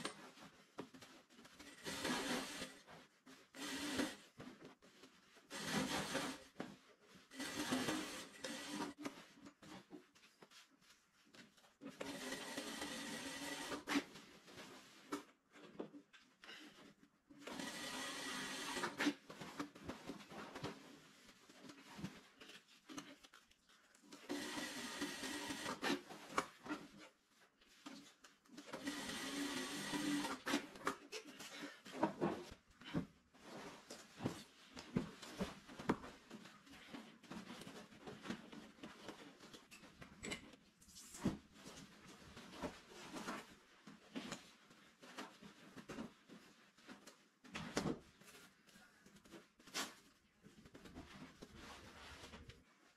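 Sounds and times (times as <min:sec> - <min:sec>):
industrial sewing machine running: 0:28.8 - 0:30.4.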